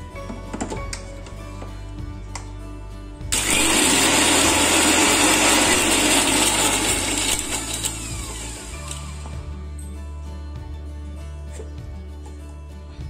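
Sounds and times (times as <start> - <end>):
mixer grinder motor whine: 3.3 - 9.5.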